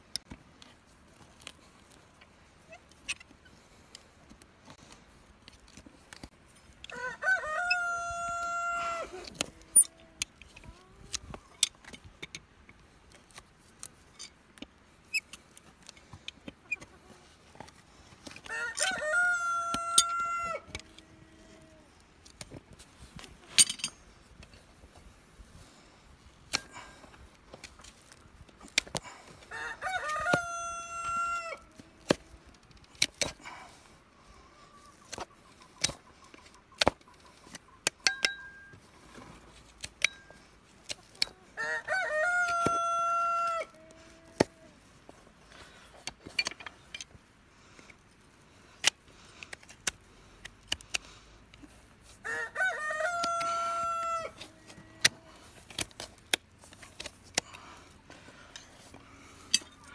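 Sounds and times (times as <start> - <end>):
rooster crowing: 6.9 - 9.9, 18.4 - 21.1, 29.5 - 31.7, 41.6 - 44.7, 52.2 - 55.2.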